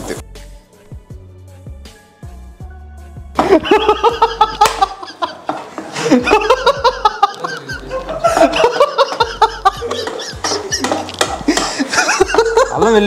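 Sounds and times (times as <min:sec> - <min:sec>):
background music with bass line: 0:00.0 - 0:05.0, 0:06.1 - 0:13.0
men laughing heartily: 0:03.4 - 0:13.0.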